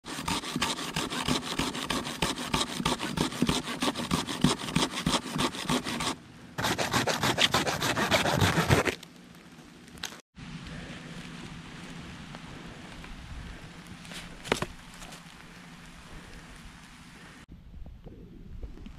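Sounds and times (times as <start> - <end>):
hand saw cutting branch: 0.0 - 9.0.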